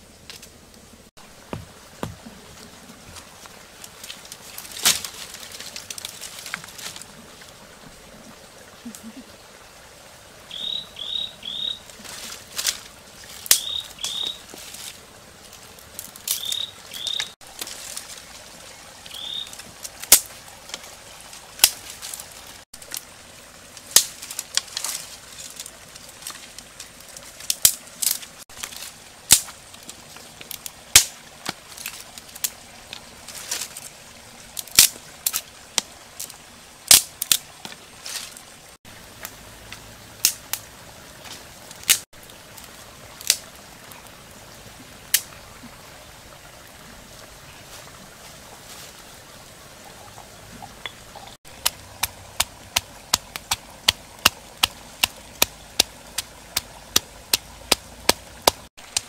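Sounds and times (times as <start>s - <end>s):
dry sticks snapping: 3.8s - 7.0s, 12.0s - 14.4s, 16.0s - 18.1s, 19.6s - 20.9s, 21.6s - 22.2s, 23.9s - 26.4s, 27.4s - 33.7s, 34.6s - 35.9s, 36.9s - 38.3s, 40.2s - 40.6s, 41.8s - 42.0s, 43.2s - 43.5s, 51.5s - 59.0s.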